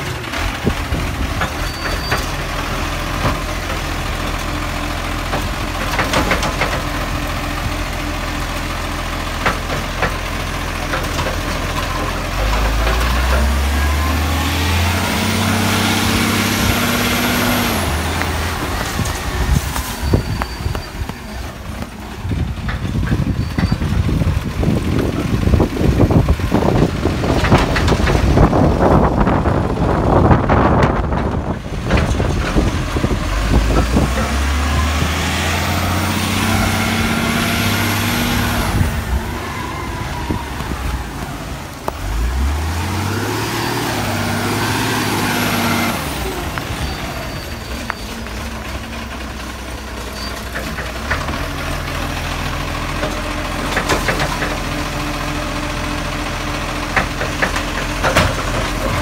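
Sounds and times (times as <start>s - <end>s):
diesel truck engine revving: 0.0s - 59.0s.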